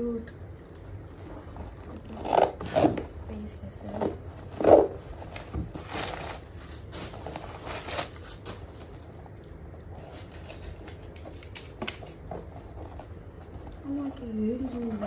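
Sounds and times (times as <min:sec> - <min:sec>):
packing stuffing rustling: 0:03.9 - 0:15.0.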